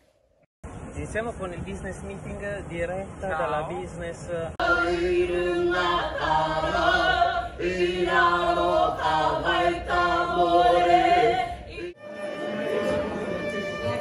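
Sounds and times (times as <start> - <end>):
group singing unaccompanied: 4.6 - 14.0.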